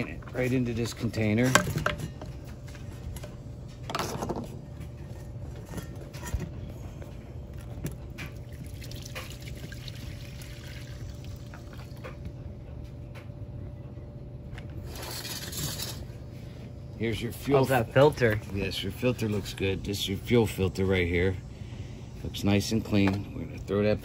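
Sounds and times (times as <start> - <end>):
fuel trickling into metal bowl: 8.4 - 12.0.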